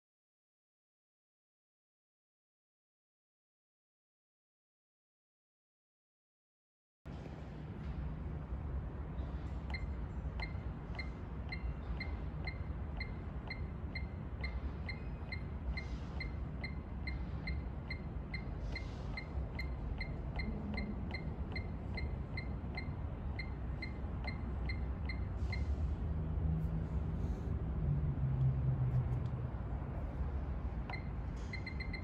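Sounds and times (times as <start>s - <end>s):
steady low hum: 7.1s - 32.0s
short high beeps: 30.9s - 32.0s.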